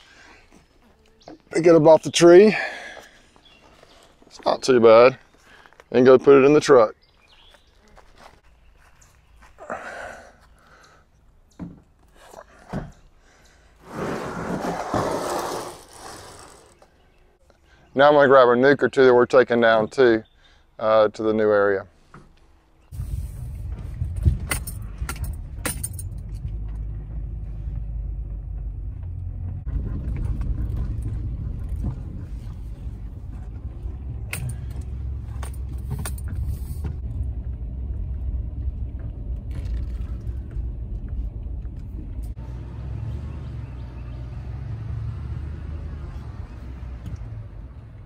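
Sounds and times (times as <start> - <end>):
engine and road rumble: 0.0 - 48.0
rattles and clinks in a cab: 23.9 - 42.4.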